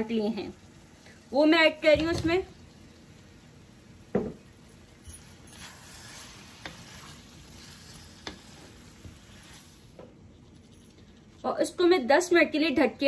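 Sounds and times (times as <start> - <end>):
meat and potatoes sizzling: 0.0 - 10.0
wood knocking on pan: 4.1 - 4.5
wooden spatula scraping pan: 5.2 - 10.6.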